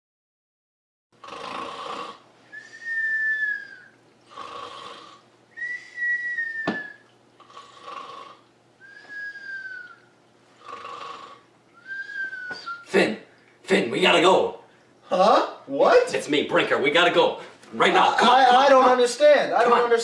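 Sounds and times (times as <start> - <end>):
cartoon snoring with whistle: 1.2 - 6.6, 10.6 - 12.8.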